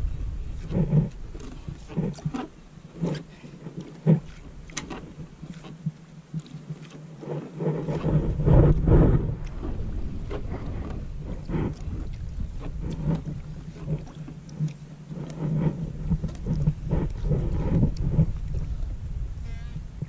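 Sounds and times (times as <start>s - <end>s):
steady low hum: 0.0s - 20.0s
wind buffeting microphone: 0.0s - 20.0s.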